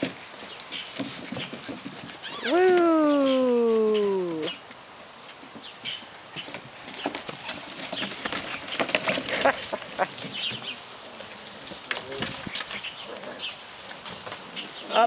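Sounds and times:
puppies scrambling on plastic: 0:00.0 - 0:02.6, 0:06.3 - 0:15.0
puppies squeaking: 0:01.3 - 0:02.6.

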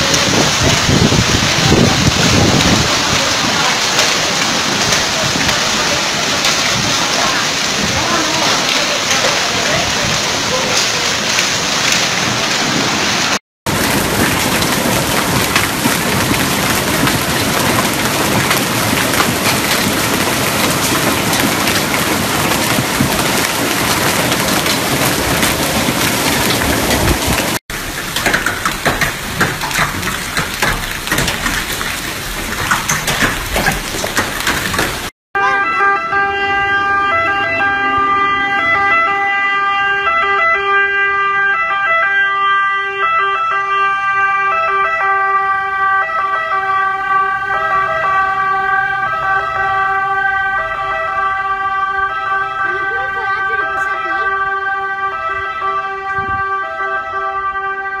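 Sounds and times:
hail pelting paving and foliage: 0:00.0 - 0:35.1, 0:44.5 - 0:57.1
torrential rain: 0:00.0 - 0:58.0
emergency vehicle siren: 0:35.4 - 0:58.0.

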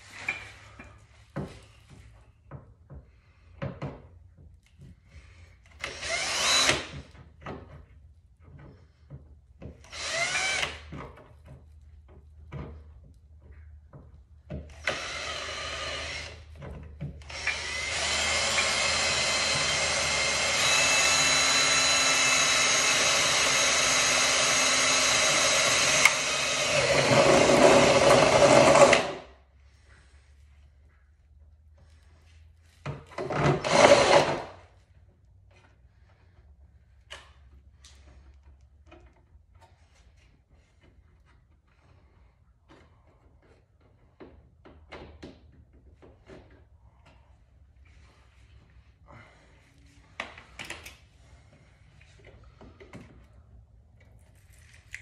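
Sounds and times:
cordless drill running: 0:05.7 - 0:07.0, 0:09.8 - 0:10.9, 0:14.7 - 0:16.5, 0:17.2 - 0:29.2, 0:33.3 - 0:34.6.

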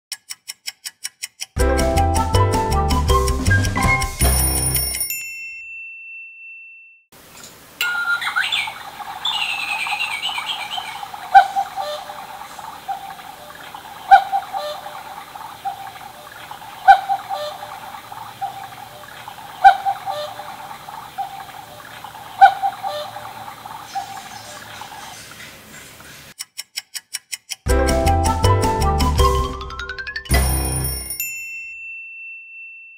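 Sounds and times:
recorded running water: 0:07.2 - 0:26.4
recorded birdsong: 0:07.4 - 0:26.3
electronic cuckoo call: 0:07.8 - 0:12.3, 0:14.1 - 0:16.0, 0:16.8 - 0:21.5, 0:22.4 - 0:24.2.

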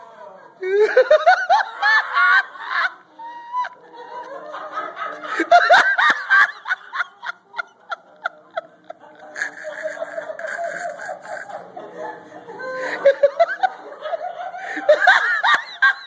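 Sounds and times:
person laughing uncontrollably: 0:09.2 - 0:11.7.

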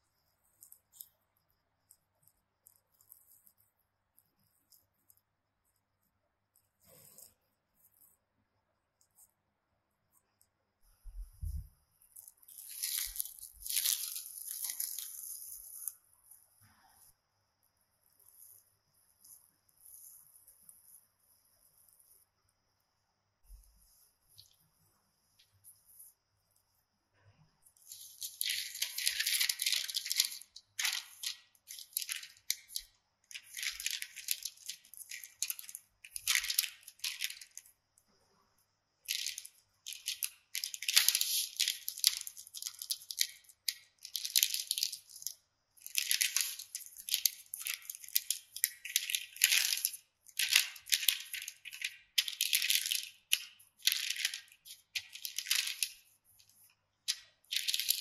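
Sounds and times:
parchment paper crinkling: 0:11.1 - 0:16.8, 0:23.5 - 0:26.7, 0:27.7 - 0:37.8, 0:39.0 - 0:58.0.

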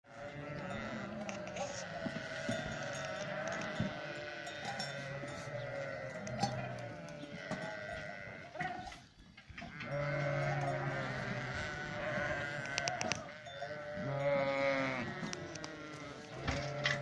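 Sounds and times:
flock of sheep bleating: 0:00.1 - 0:17.0.

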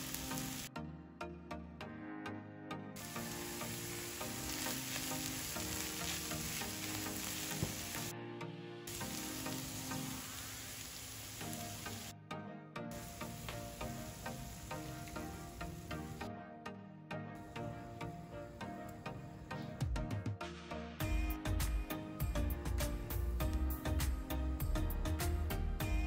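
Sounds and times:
meat sizzling in a frying pan: 0:00.0 - 0:00.7, 0:03.0 - 0:08.1, 0:08.9 - 0:12.1, 0:13.0 - 0:16.3.

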